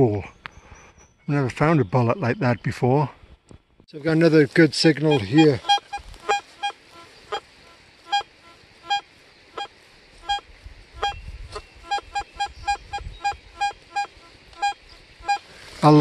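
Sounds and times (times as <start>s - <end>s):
metal detector beeps: 5.1s - 6.8s, 11.0s - 11.2s, 11.8s - 15.4s.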